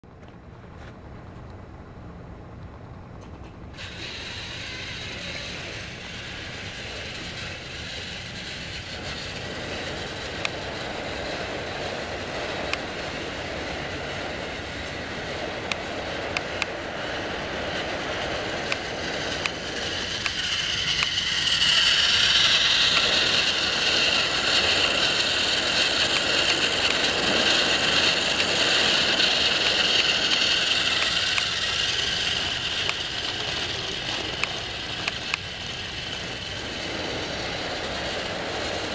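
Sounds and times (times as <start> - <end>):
toy train motors whirring: 3.7 - 38.9
sharp clicks: 34.1 - 35.5.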